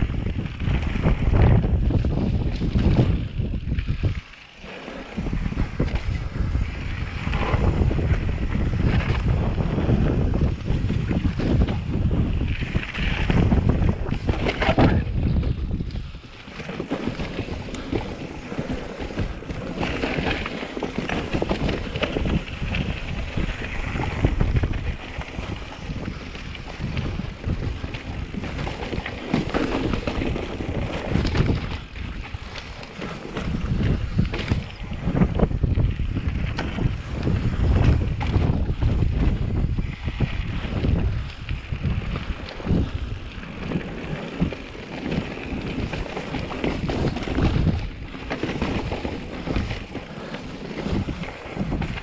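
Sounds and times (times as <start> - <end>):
wind buffeting microphone: 0.0 - 52.0.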